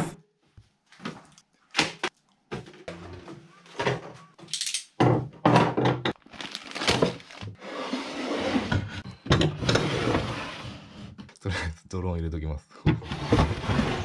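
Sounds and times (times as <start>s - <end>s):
items thunking into wooden drawer: 5.0s - 6.2s
plastic packet rustling: 6.2s - 7.6s
drawer sliding on runners: 7.6s - 11.2s, 13.0s - 14.0s.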